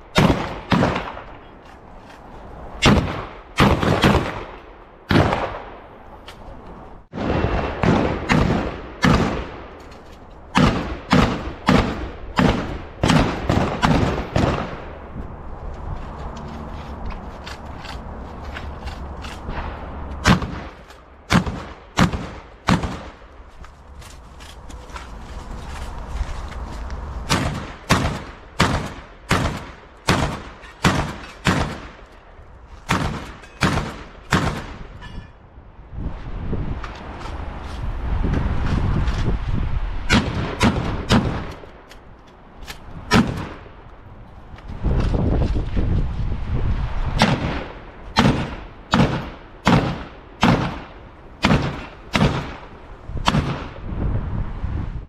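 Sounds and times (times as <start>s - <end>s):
wind rumble on microphone: 0.0s - 55.0s
loud gunshots: 0.1s - 1.3s, 2.8s - 5.7s, 7.1s - 9.6s, 10.6s - 14.9s, 19.5s - 23.2s, 27.3s - 32.0s, 32.9s - 34.9s, 40.1s - 41.5s, 47.2s - 53.8s.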